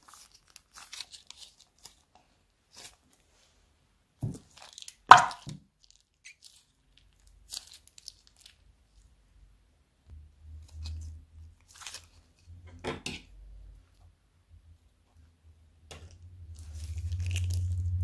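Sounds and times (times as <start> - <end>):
soft plastic crinkles: 0.0 - 9.2, 10.6 - 12.6, 16.0 - 18.0
sharp plop: 5.1 - 5.4
slime squeezed from bag: 16.5 - 18.0.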